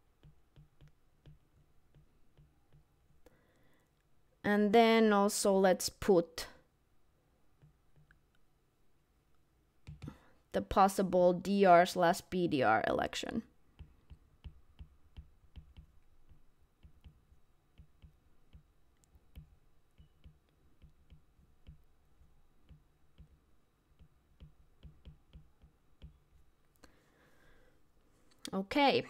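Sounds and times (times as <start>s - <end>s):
stylus tapping on glass screen: 13.8s - 18.7s, 19.3s - 21.9s, 22.6s - 26.2s.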